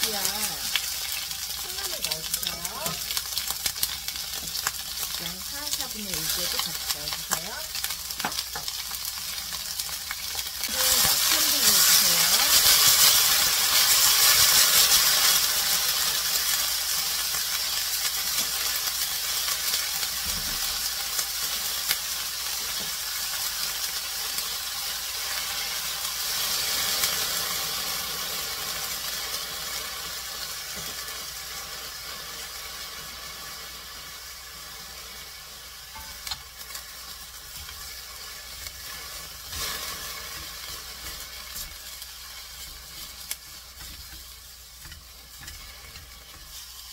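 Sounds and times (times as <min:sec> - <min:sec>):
vegetables sizzling in a pan: 0:00.0 - 0:46.9.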